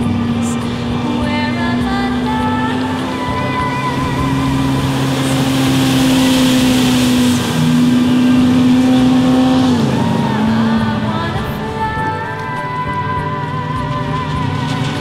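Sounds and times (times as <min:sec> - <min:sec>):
powerboat engine passing by: 0:00.0 - 0:15.0.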